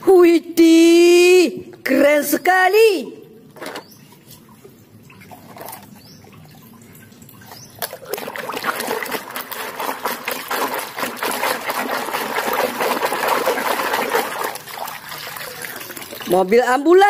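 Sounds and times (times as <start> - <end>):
water splashing in plastic basin: 3.6 - 17.0.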